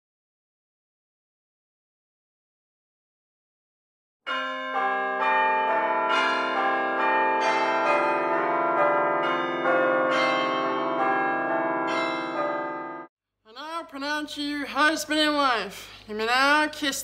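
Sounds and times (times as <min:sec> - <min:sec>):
church bells ringing a peal: 0:04.3 - 0:13.1.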